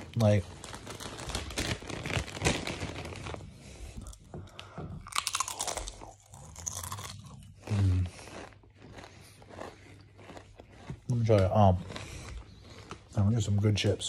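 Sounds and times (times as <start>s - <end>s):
chips crunching: 5.1s - 13.9s.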